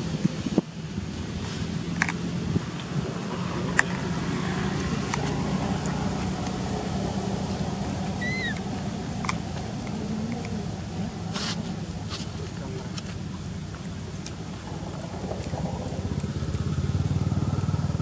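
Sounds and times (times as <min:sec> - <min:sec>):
low engine-like hum: 0:00.0 - 0:18.0
short high chirp: 0:08.2 - 0:08.6.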